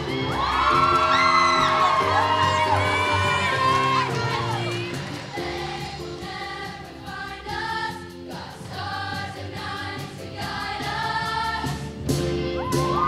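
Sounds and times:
audience whooping: 0.0 - 5.0, 12.6 - 13.0
choir singing: 0.0 - 12.0
instrumental music with beat: 0.0 - 13.0.

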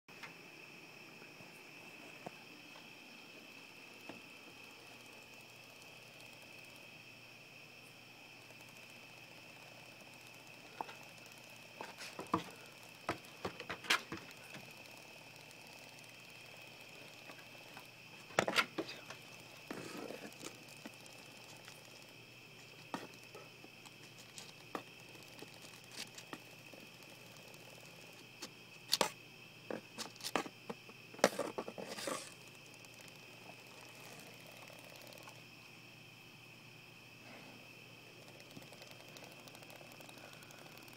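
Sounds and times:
crickets trilling: 0.1 - 40.9
sharp clicks and knocks: 8.6 - 16.1, 16.9 - 35.4.

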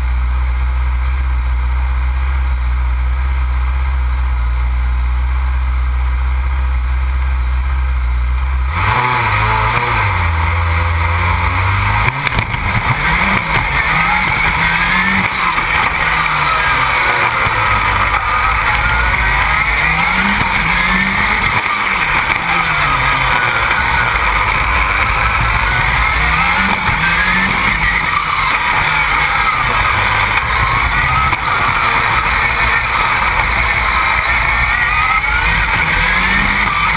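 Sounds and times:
race car engine revving: 0.0 - 36.9
loud rushing noise: 8.7 - 36.9.

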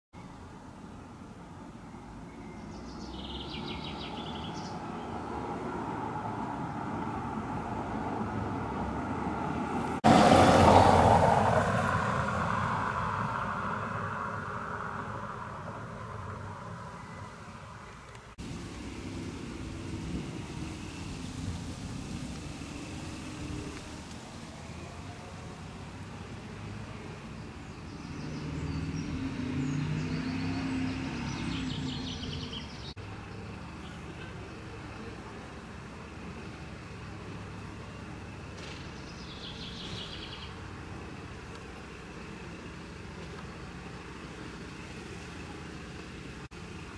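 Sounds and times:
birds chirping: 0.2 - 7.1, 14.5 - 25.5, 26.1 - 35.5, 36.4 - 46.4
street traffic hum: 0.2 - 46.9
loud passing vehicle: 2.8 - 35.1
diesel engine running: 7.2 - 27.2, 33.0 - 46.9.

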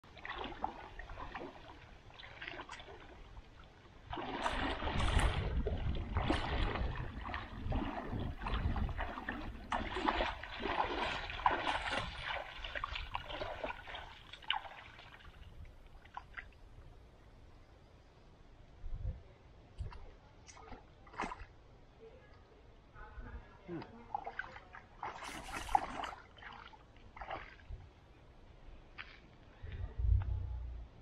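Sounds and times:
legs wading through water: 0.0 - 16.8, 19.9 - 21.7, 23.8 - 28.1.

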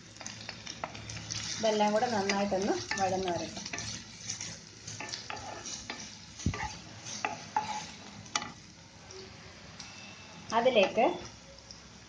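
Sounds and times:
onions sizzling in pan: 0.0 - 12.0
wooden spatula scraping pan: 2.2 - 8.0.

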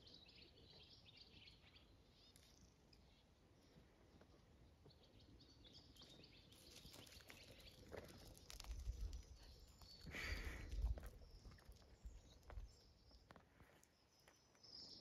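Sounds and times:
paws crunching on gravel: 6.5 - 14.3.

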